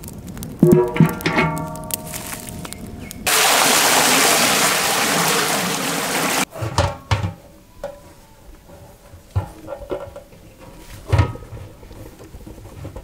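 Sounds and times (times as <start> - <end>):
water pouring into metal pot: 3.3 - 6.5.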